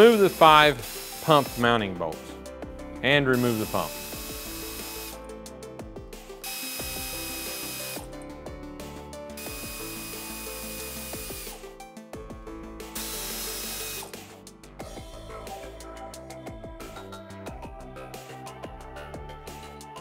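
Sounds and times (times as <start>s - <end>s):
power ratchet running: 0.0s - 1.8s, 3.3s - 5.3s, 6.4s - 8.1s, 9.4s - 11.6s, 12.9s - 14.2s
background music: 0.0s - 20.0s.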